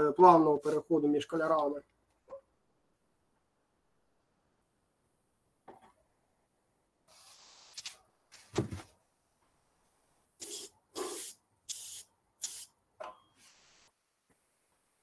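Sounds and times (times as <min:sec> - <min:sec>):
spray paint bursts: 0:07.1 - 0:08.0, 0:10.4 - 0:12.7.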